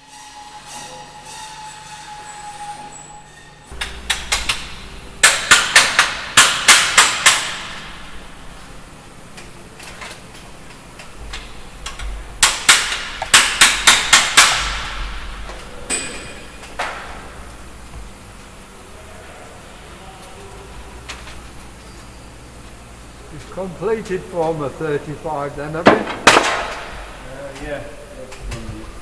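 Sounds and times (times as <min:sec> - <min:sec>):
hammer striking metal: 0:03.7 - 0:08.2, 0:11.3 - 0:17.4, 0:25.8 - 0:27.0.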